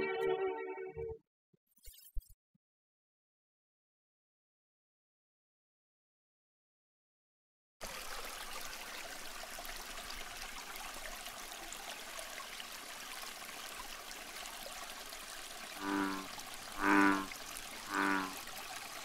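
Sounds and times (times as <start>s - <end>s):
water trickling and splashing: 7.8s - 19.0s.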